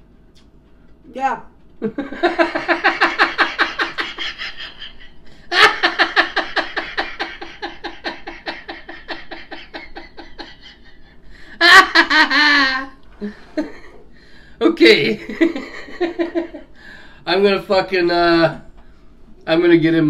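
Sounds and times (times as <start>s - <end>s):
man and woman laughing: 1.8s - 14.0s, 14.9s - 16.8s.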